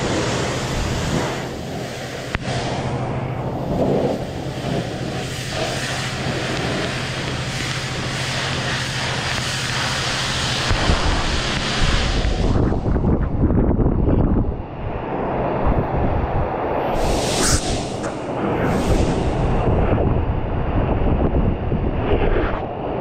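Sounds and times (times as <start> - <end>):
high-pressure water spray: 0.0 - 13.0, 17.0 - 19.8
low steady hum: 0.0 - 23.0.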